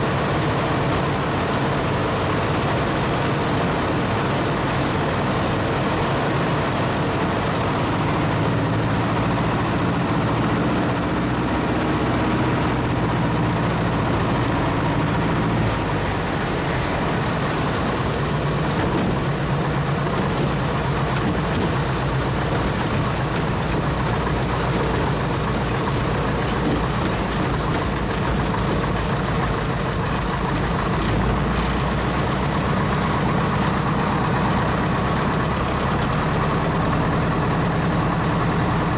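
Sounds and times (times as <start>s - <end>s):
small plane engine idling: 0.0s - 38.9s.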